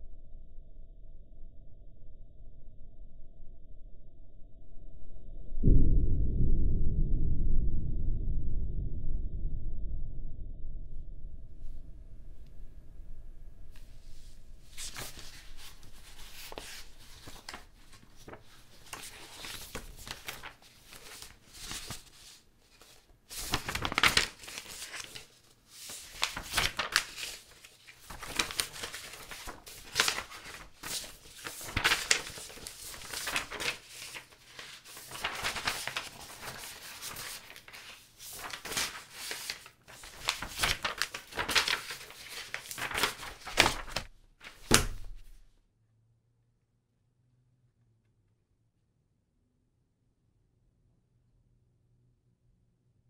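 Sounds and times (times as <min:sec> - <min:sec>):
paper rustling and crinkling: 0:13.7 - 0:45.4.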